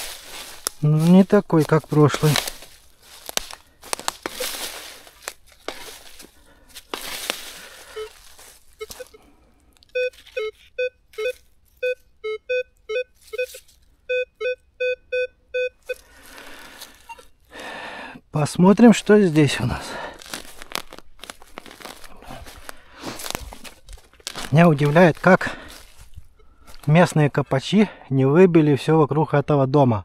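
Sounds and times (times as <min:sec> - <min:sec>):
shovel scraping into soil: 0:00.0 - 0:09.1
metal detector short beeps: 0:07.9 - 0:08.2, 0:09.9 - 0:16.1, 0:17.0 - 0:17.4.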